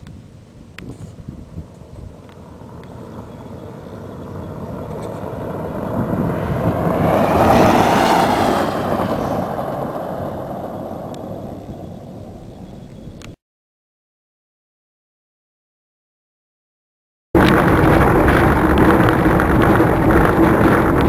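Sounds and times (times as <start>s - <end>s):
vehicle driving past on dirt: 2.5s - 12.2s, 17.4s - 21.0s.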